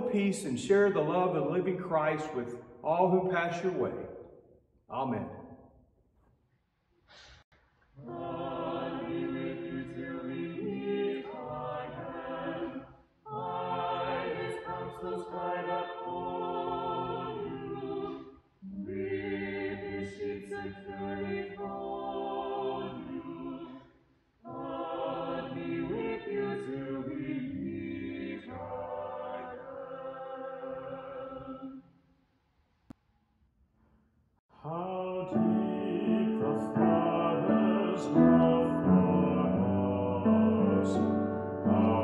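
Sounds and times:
vocal quartet singing a cappella: 8.0 - 31.9, 34.6 - 42.0.

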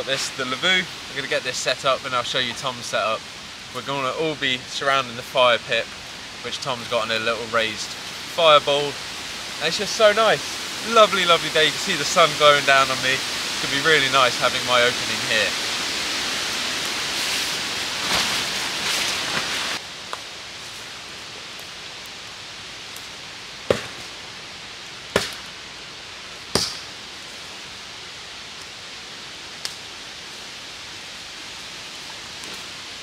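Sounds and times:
woodland background: 0.0 - 33.0
tarp rustling and flapping: 9.8 - 19.8.

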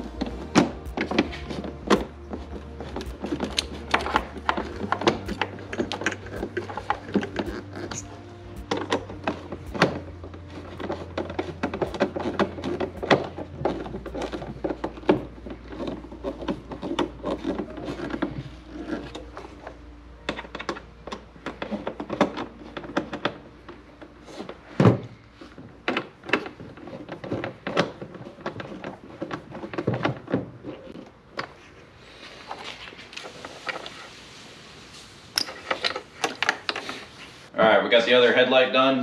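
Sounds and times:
low hum: 0.0 - 25.9.

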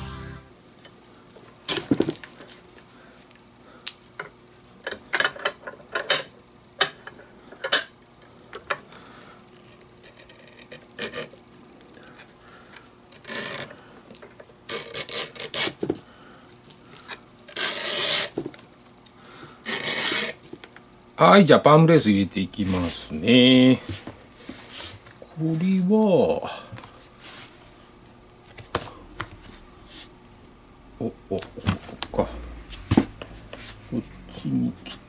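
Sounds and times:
lace rasping through tool: 13.1 - 13.8, 17.5 - 18.3, 19.6 - 20.4.

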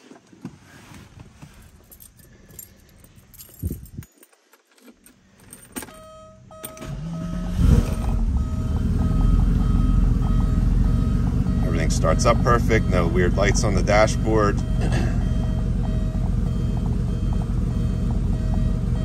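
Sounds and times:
keys jangling: 1.5 - 6.0
car engine starting and idling: 5.0 - 19.0.

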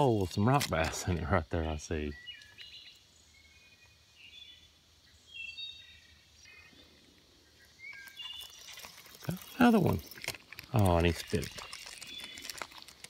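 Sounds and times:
faint bird chirps: 1.6 - 10.2.

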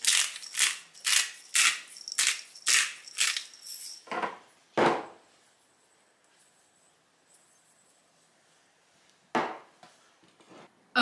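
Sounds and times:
pepper grinder grinding: 0.0 - 4.0.

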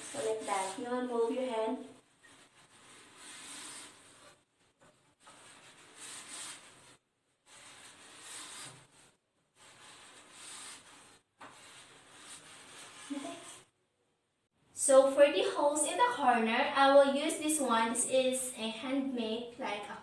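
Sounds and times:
cloth wiping metal bar: 2.0 - 13.6.

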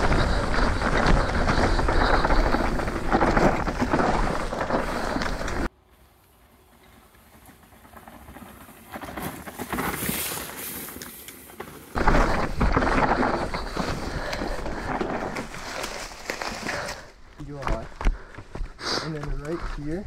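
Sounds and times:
wind on microphone: 0.0 - 5.7
mountain bike tyres on dirt: 0.0 - 20.0.

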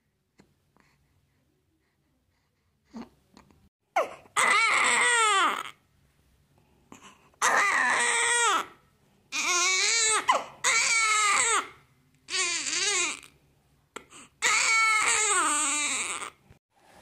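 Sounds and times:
newborn baby crying: 4.0 - 5.8, 7.4 - 13.4, 14.0 - 16.4.

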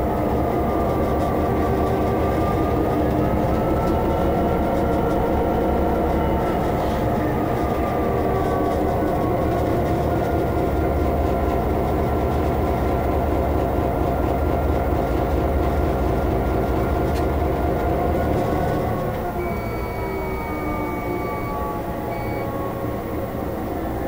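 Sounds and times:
locomotive diesel engine drone: 0.0 - 24.0.

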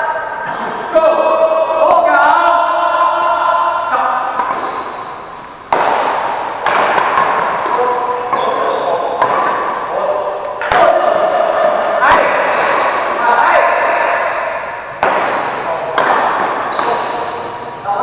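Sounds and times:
players' voices: 0.0 - 18.0
shoes squeaking on court: 4.2 - 17.9
racket striking shuttlecock: 4.3 - 9.7, 10.5 - 11.0, 14.4 - 17.8.

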